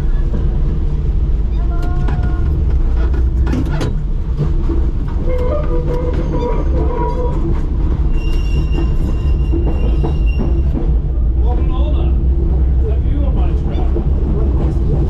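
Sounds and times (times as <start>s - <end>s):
tram rumbling on track: 0.0s - 15.0s
wheels clicking over rail joints: 0.0s - 15.0s.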